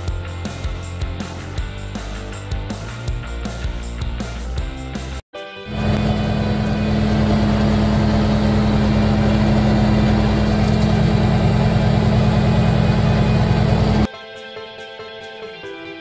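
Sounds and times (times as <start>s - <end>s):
tractor engine humming: 5.7s - 14.1s.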